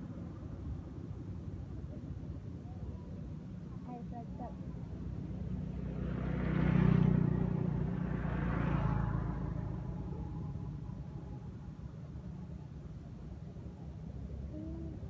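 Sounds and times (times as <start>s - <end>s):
vehicle passing on road: 4.7s - 15.0s.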